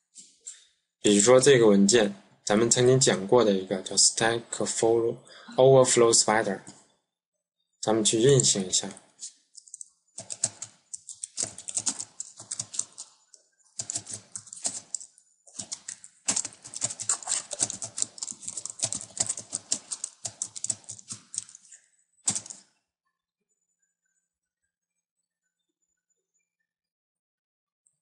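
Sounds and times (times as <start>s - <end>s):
keyboard typing: 8.2s - 22.7s.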